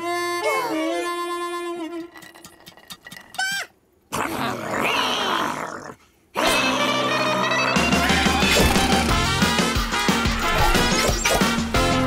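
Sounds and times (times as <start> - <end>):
rough creature cry: 3.4 - 9.2.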